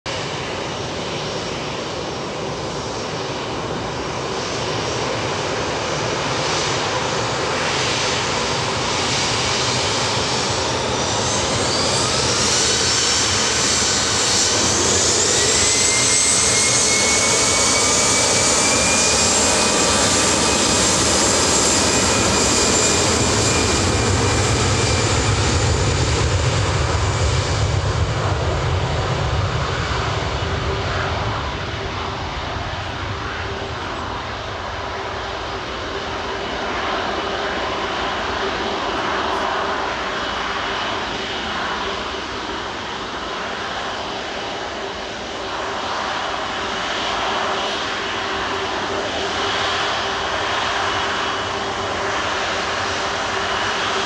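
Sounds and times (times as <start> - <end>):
jet engines spooling up: 0.2 - 54.0.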